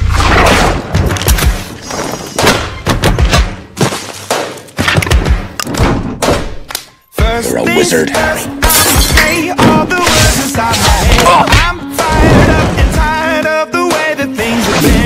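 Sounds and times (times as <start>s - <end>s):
heavy thuds and crashes: 9.4s - 13.2s.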